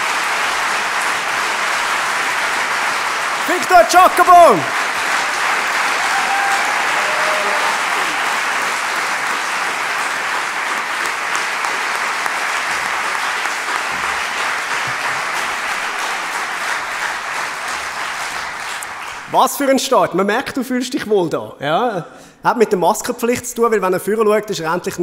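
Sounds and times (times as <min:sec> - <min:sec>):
audience applauding: 0:00.0 - 0:19.6.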